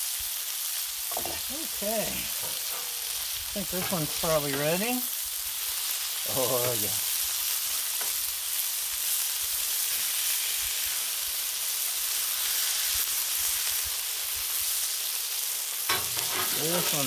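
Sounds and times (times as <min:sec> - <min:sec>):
patties sizzling on a griddle: 0:00.0 - 0:17.0.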